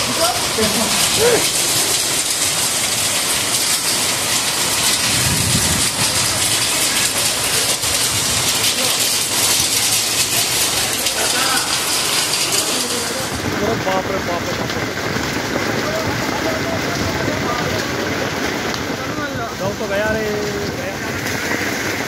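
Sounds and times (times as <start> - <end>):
heavy rain on pavement: 0.0 - 22.0.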